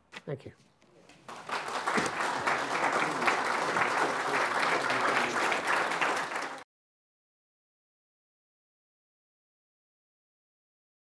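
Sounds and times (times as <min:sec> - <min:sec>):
audience applauding: 0:01.2 - 0:06.6.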